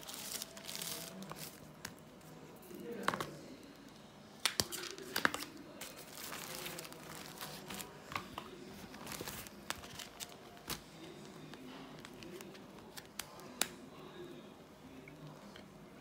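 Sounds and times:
plastic phone case rustling: 0.0s - 2.0s, 4.6s - 13.3s.

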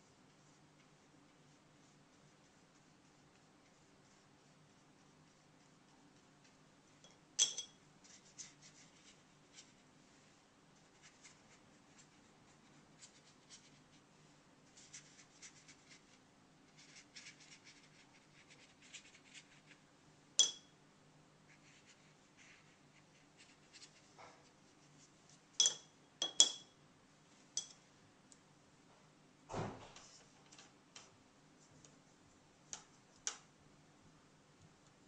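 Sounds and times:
brush strokes on paper: 0.0s - 7.0s, 8.0s - 19.8s, 21.5s - 25.6s.

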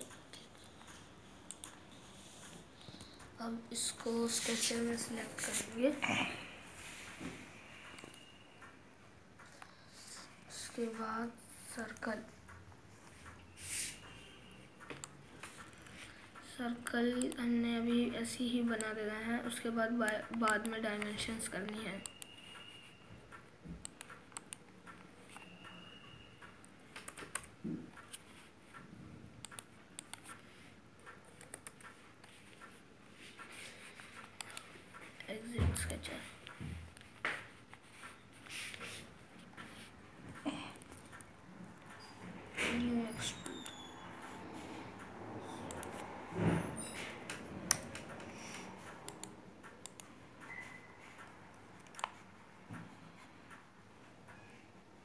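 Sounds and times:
laptop touchpad and key clicks: 47.2s - 52.2s.

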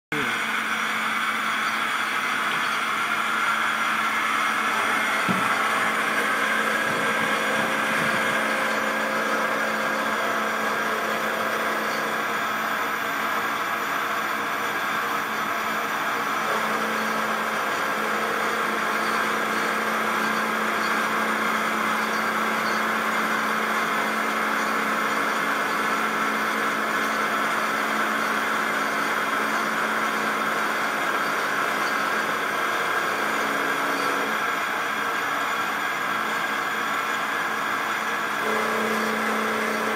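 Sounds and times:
milling machine cutting metal: 0.1s - 39.9s.

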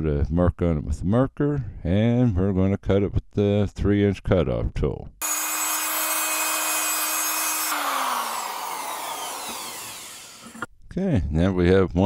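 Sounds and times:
cutoff wheel grinding steel: 5.2s - 10.7s.

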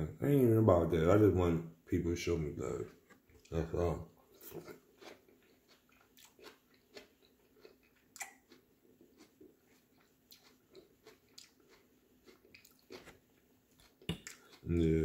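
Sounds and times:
wet chewing with mouth closed: 4.3s - 14.7s.

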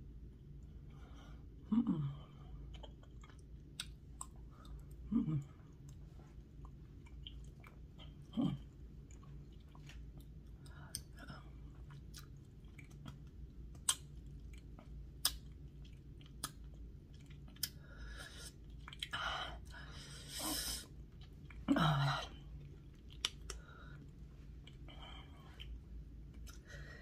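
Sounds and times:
low throat sound: 1.6s - 2.5s, 5.0s - 5.6s
wet chewing mouth noises: 2.7s - 19.2s, 22.4s - 26.7s
sharp mouth clicks: 15.2s - 15.5s.

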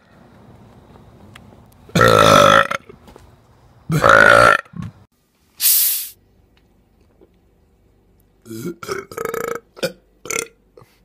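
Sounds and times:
person belching: 1.9s - 2.9s, 3.9s - 4.9s, 8.4s - 10.9s
short hiss: 5.6s - 6.2s.

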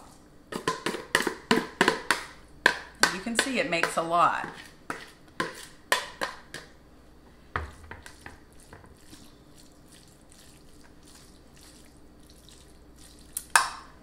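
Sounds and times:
spoon scraping a bowl: 3.4s - 5.8s.

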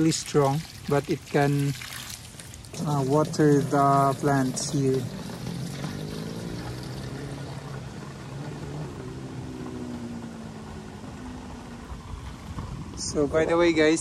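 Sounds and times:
water pouring and splashing: 0.0s - 8.4s
water pump motor humming: 0.0s - 8.4s.

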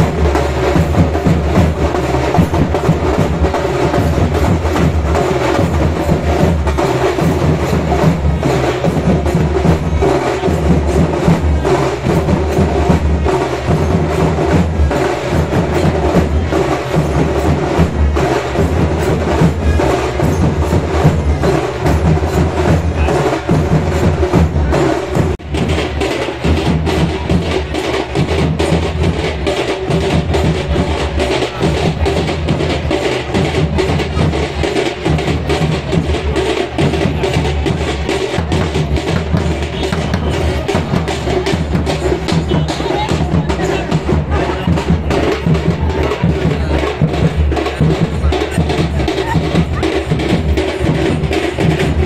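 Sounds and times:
drum-driven procession music: 0.0s - 52.0s.

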